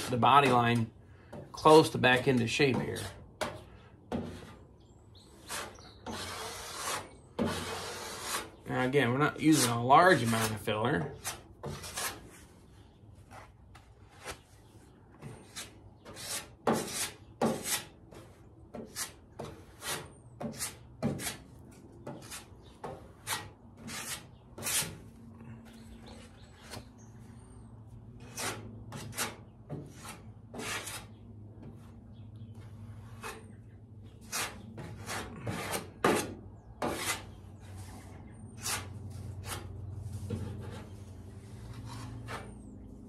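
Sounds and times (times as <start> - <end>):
metal spreader scraping filler: 5.4 - 12.3.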